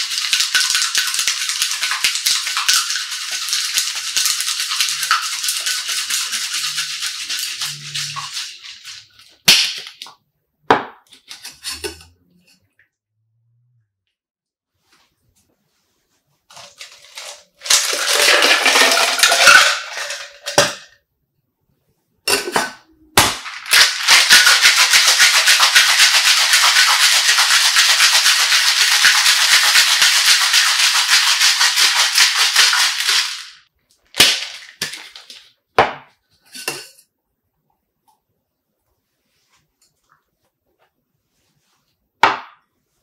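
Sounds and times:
ice rattling in shaker tins: 0:00.0 - 0:09.9, 0:16.5 - 0:21.0, 0:23.4 - 0:35.5
metal tins clinking: 0:16.5 - 0:21.0, 0:22.3 - 0:22.8, 0:36.4 - 0:37.0.

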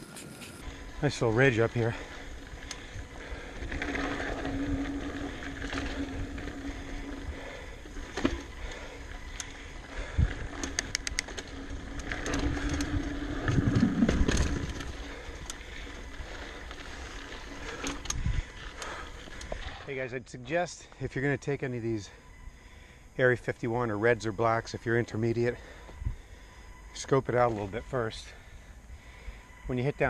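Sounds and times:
bike rattles and clicks: 0:00.0 - 0:20.0
bike tyre and drivetrain rumble: 0:00.0 - 0:20.2, 0:20.8 - 0:30.0.

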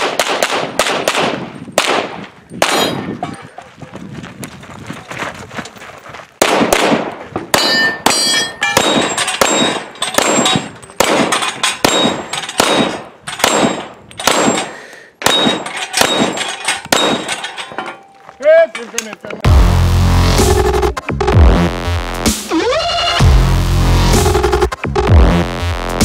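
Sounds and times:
rapid pistol fire: 0:00.0 - 0:02.8, 0:06.4 - 0:07.1, 0:11.0 - 0:14.6
steel targets ringing: 0:07.6 - 0:10.7, 0:14.4 - 0:18.9.

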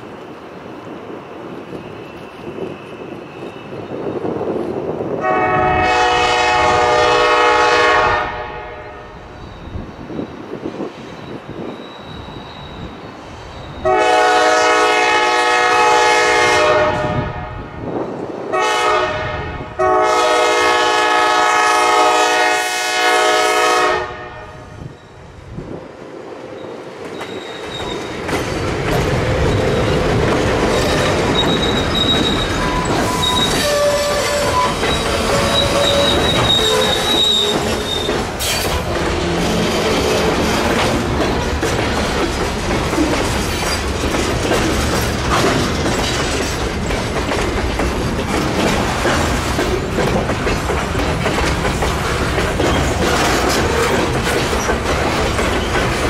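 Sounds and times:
diesel locomotive engine: 0:00.0 - 0:56.0
train wheels on rails: 0:00.0 - 0:56.0
locomotive air horn: 0:05.2 - 0:09.2, 0:13.8 - 0:17.7, 0:18.5 - 0:24.7, 0:32.8 - 0:37.7.

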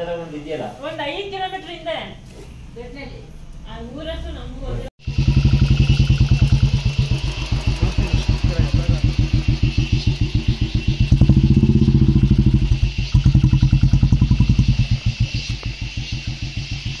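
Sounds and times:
motorcycle engine idling and revving: 0:04.0 - 0:17.0.

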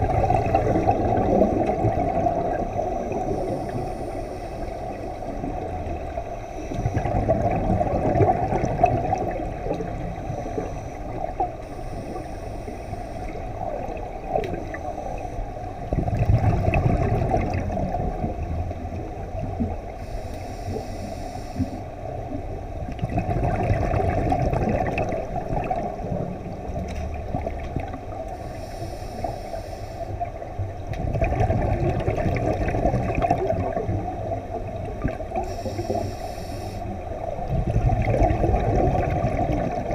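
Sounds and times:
exhaled bubbles gurgling underwater: 0:00.0 - 0:39.9
regulator inhalation hiss: 0:03.0 - 0:05.1, 0:10.3 - 0:13.6, 0:20.0 - 0:21.9, 0:28.4 - 0:30.2, 0:35.4 - 0:37.0.

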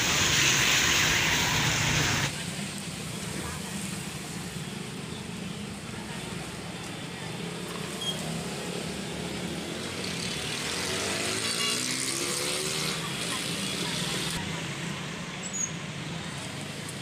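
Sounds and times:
traffic noise: 0:00.0 - 0:17.0
vehicle engine accelerating: 0:10.0 - 0:14.4.

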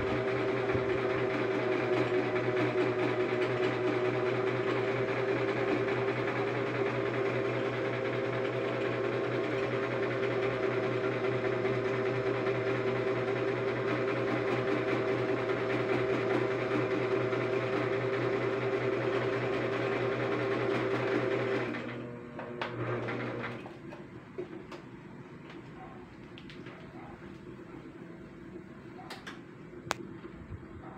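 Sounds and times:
sewing machine stitching: 0:00.0 - 0:23.7.

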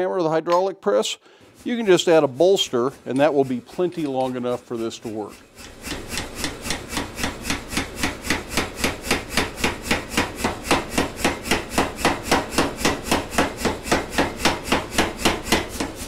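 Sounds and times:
power hammer striking hot steel: 0:03.1 - 0:16.0.

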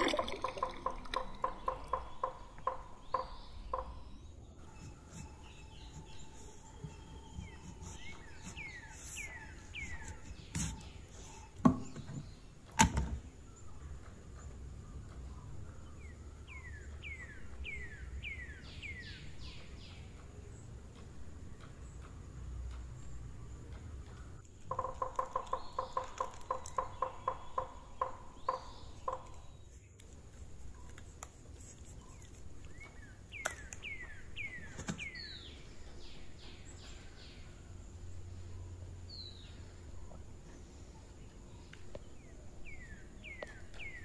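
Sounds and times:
water dripping into a clay pot: 0:00.0 - 0:04.0, 0:24.4 - 0:29.5
bird chirping: 0:00.0 - 0:44.0.

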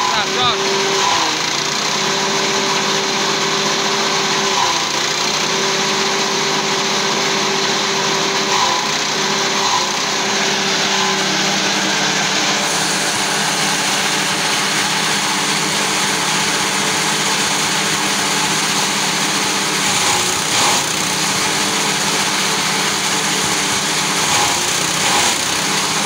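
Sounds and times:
chopper cutter whirring: 0:00.0 - 0:26.0
small petrol engine running: 0:00.0 - 0:26.0.

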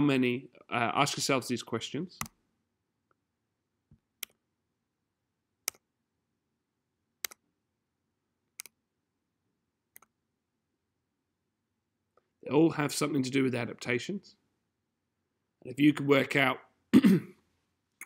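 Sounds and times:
computer mouse clicks: 0:05.6 - 0:05.9, 0:07.2 - 0:07.4, 0:08.5 - 0:08.8, 0:09.9 - 0:10.2.

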